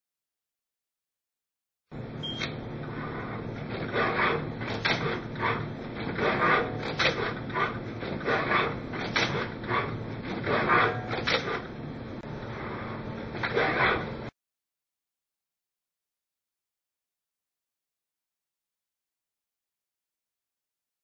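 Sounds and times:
robotic gripper motors whirring: 2.4 - 14.3.

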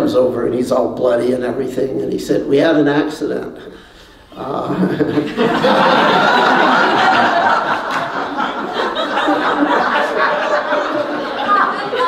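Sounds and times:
people laughing: 4.4 - 12.0.

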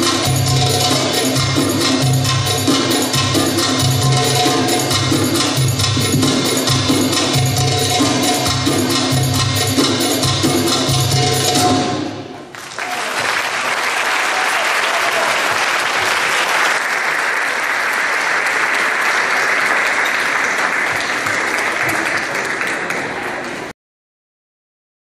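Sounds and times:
percussion music: 0.0 - 13.0
audience applauding: 12.5 - 23.7.

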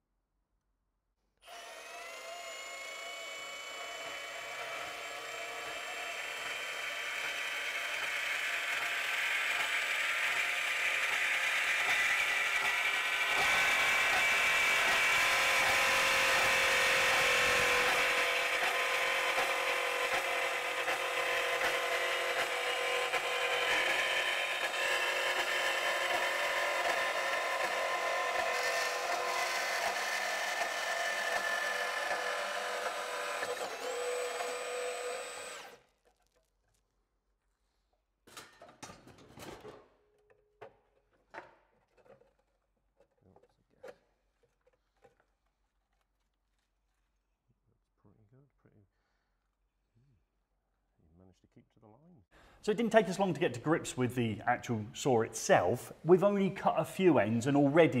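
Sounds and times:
band saw cutting metal: 1.4 - 35.8.

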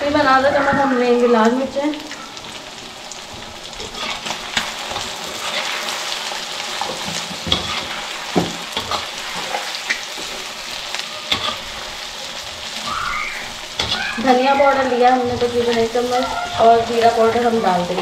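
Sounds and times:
chicken frying in hot oil: 0.0 - 18.0
metal spatula scraping a pan: 3.8 - 6.2, 6.8 - 12.8, 13.4 - 18.0.

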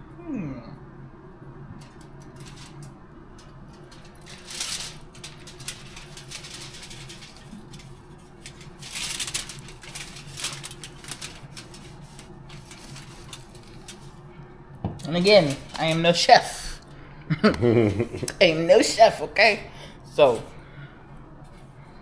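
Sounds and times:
steady low hum: 0.0 - 22.0
crinkling rustles: 1.8 - 16.9.

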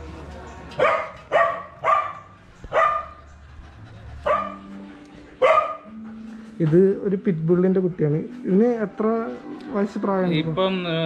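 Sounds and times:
dog barking: 0.8 - 3.2, 4.2 - 4.7, 5.4 - 6.0.

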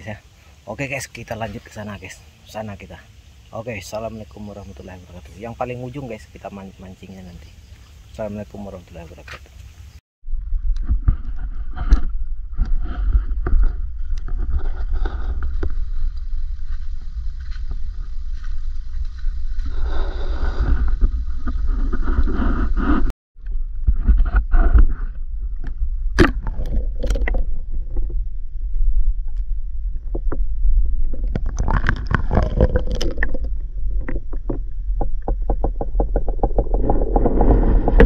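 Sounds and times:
low rumbling handling noise: 9.0 - 38.0.

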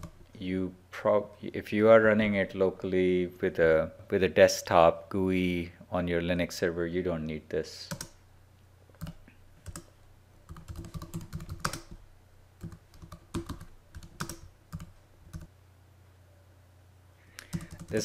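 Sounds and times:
typing on a computer keyboard: 7.9 - 8.2, 9.0 - 9.9, 10.5 - 12.0, 12.6 - 15.5, 17.4 - 18.0.

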